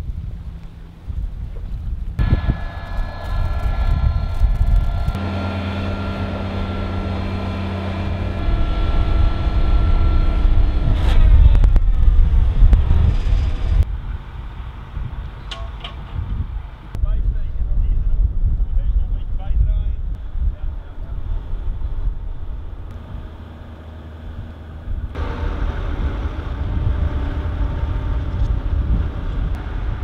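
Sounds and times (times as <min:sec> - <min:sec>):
high machine whine: 0:02.2 - 0:13.8, 0:22.7 - 0:30.0
vibratory pile hammer drone: 0:02.2 - 0:13.9, 0:21.3 - 0:30.0.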